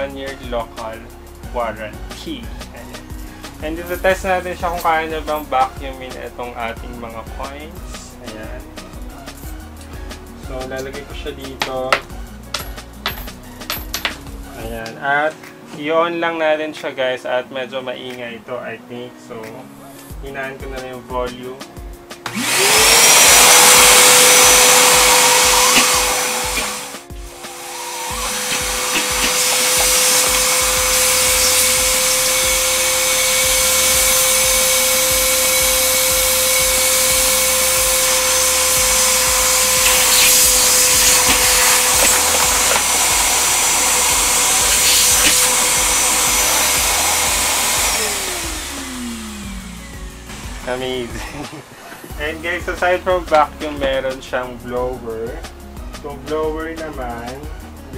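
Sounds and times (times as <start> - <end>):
vacuum cleaner motor whine: 22.3 - 51.5.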